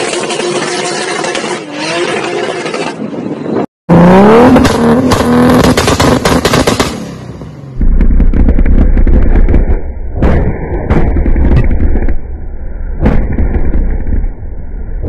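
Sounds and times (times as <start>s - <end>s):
car engine revving: 3.9s - 8.8s
exhaust pops: 7.8s - 12.3s, 13.0s - 14.4s.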